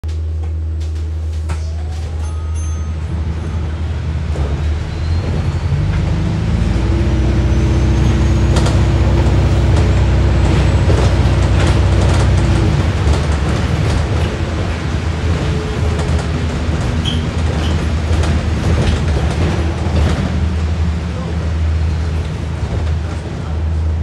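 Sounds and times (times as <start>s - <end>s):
bus engine drone: 0.0s - 24.0s
interior rattles and clicks: 8.5s - 20.8s.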